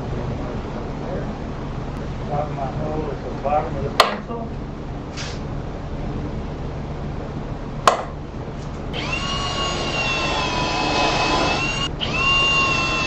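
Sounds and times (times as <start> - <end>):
cordless drill whining: 9.0 - 13.0.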